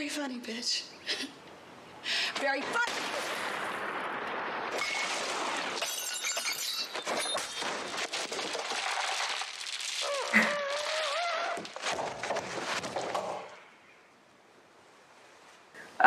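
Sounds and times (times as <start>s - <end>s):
crashing and shattering: 2.6s - 13.6s
person crying out: 10.0s - 11.6s.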